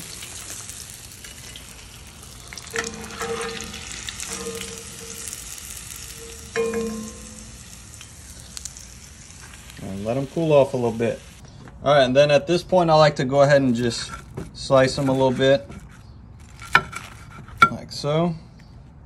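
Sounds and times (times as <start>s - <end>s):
frying oil sizzling: 0.0s - 11.4s
metal skimmer scraping pan: 2.5s - 8.0s.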